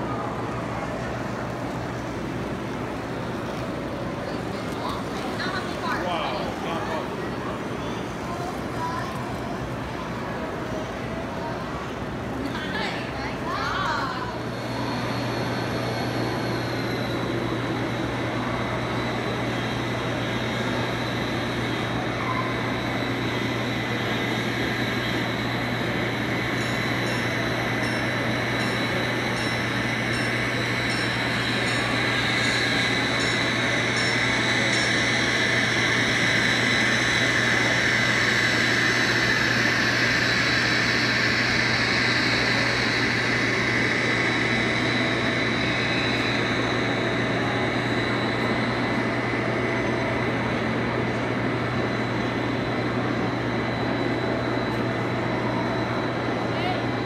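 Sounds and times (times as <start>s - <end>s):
constant low hum: 0.0s - 57.0s
model train rumbling and rattling: 14.3s - 56.5s.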